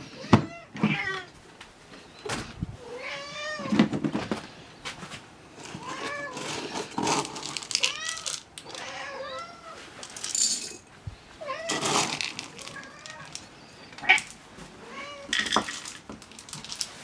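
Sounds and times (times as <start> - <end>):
cats meowing: 0.0 - 1.4, 2.8 - 4.1, 5.6 - 10.0, 11.4 - 16.6
scoop rattling through dry kibble: 5.7 - 9.0, 10.0 - 10.9, 11.7 - 14.4, 15.3 - 17.0.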